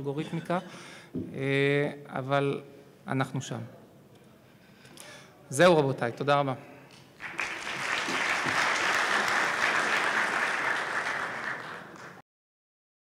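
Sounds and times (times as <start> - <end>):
audience applauding: 7.2 - 12.2.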